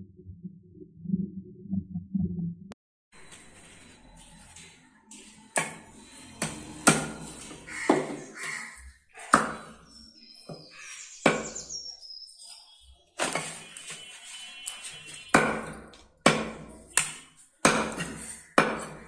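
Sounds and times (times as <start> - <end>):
cleaver chopping onto wooden block: 15.3 - 19.0.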